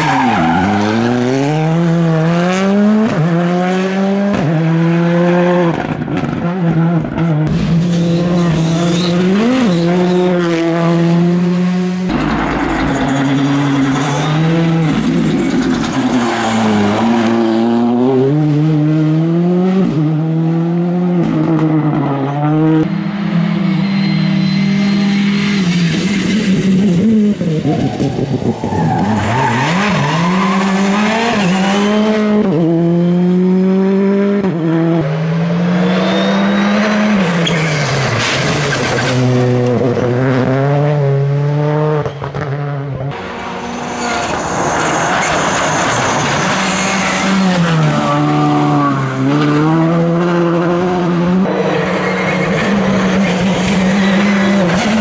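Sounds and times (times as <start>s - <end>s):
rally car engines at full throttle: 0.0s - 55.0s
tyres skidding on loose surface: 43.6s - 49.7s.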